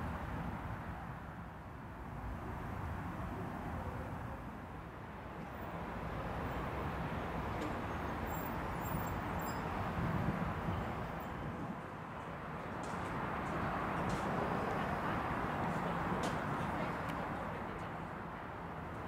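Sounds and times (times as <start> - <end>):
distant road traffic: 0.0 - 19.0.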